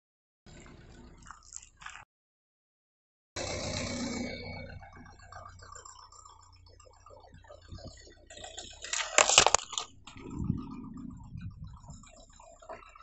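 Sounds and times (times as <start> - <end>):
plastic tub crunching under tyre: 8.4 - 10.3.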